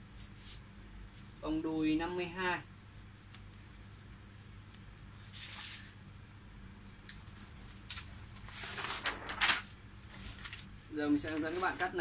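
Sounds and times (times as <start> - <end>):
paper rustling: 3.2 - 6.0, 7.2 - 12.0.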